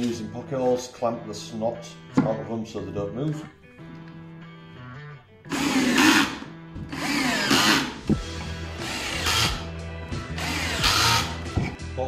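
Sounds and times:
cordless drill driving screws: 5.5s - 11.5s.

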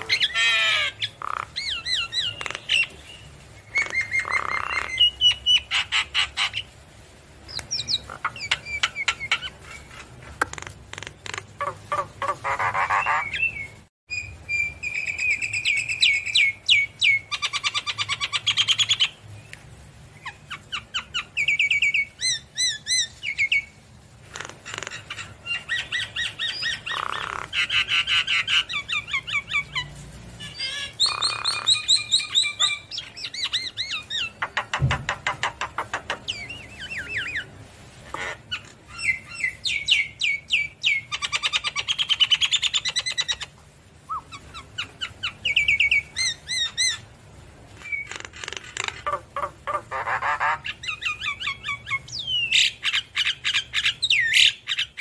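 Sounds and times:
bird singing whistles and trills: 12.9s - 19.1s.

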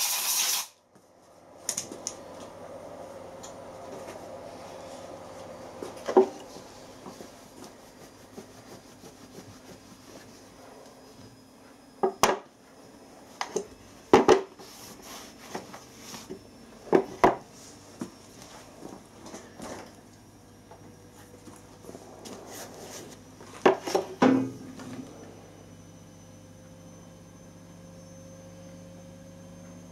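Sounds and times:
cloth rubbing on metal: 6.7s - 10.8s.

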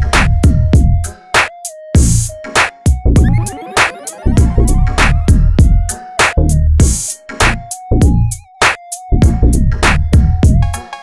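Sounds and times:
electronic dance music: 3.2s - 6.2s
sustained synth melody: 3.2s - 6.2s.

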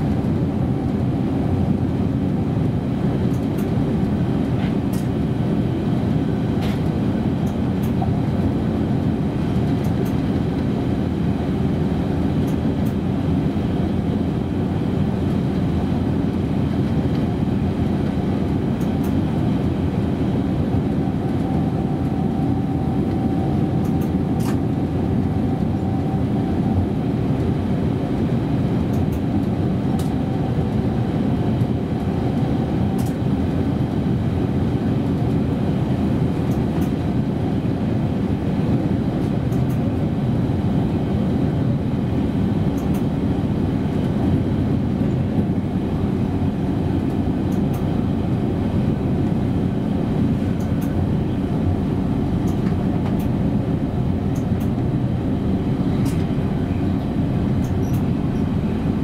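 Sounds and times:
electric train rumbling on track: 0.0s - 59.0s
faint steady whine: 13.0s - 35.6s
train clicks: 52.4s - 53.3s, 57.6s - 58.1s.

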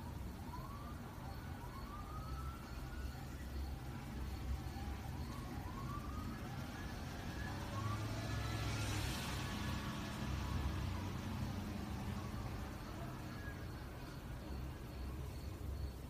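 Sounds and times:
distant siren: 0.0s - 16.0s
traffic rumble: 0.0s - 16.0s.

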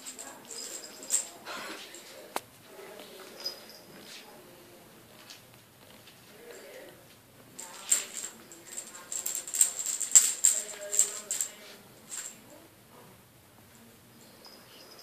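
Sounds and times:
metallic jingling and rattling: 0.0s - 2.0s, 3.3s - 4.0s, 7.6s - 12.4s, 14.1s - 15.0s.

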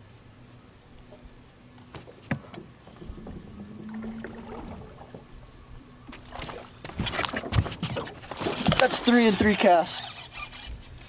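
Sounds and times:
low hum: 0.0s - 7.5s
water lapping at hull: 0.8s - 11.0s.

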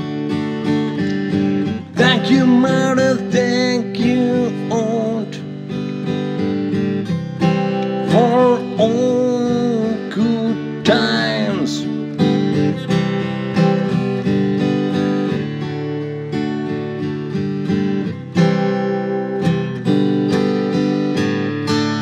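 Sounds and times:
acoustic guitar strumming: 0.0s - 22.0s
person singing: 1.8s - 5.6s, 7.9s - 12.2s.

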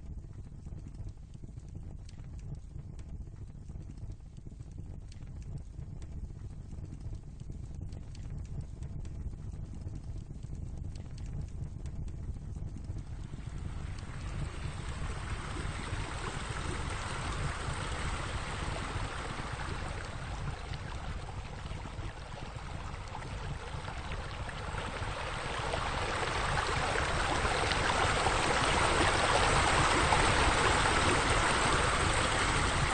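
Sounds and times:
low rumble: 10.8s - 32.9s
water pouring into pool: 13.1s - 32.9s.

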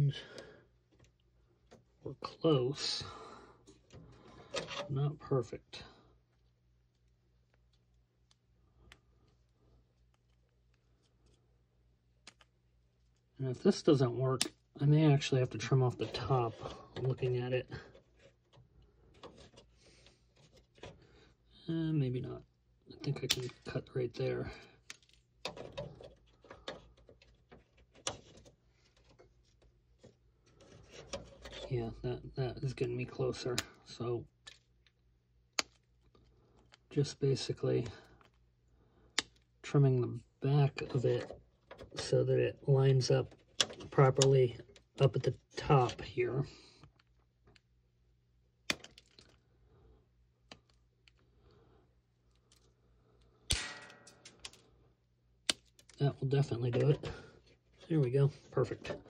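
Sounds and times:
sharp plastic snap: 53.5s - 54.6s.

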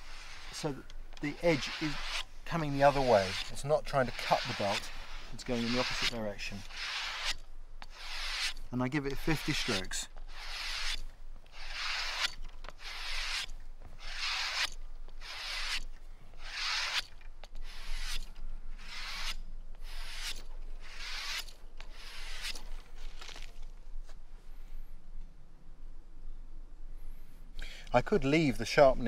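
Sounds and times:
knife stropping on belt swish: 0.0s - 18.2s.

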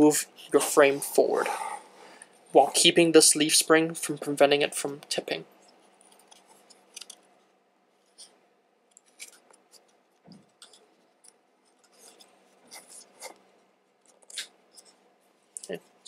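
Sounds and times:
small plastic parts clicking: 6.0s - 7.2s, 8.1s - 12.3s.

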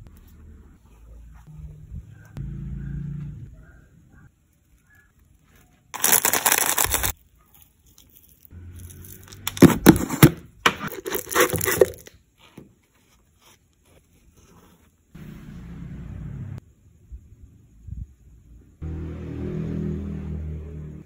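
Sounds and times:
cereal pieces clicking into cup: 6.0s - 7.1s.

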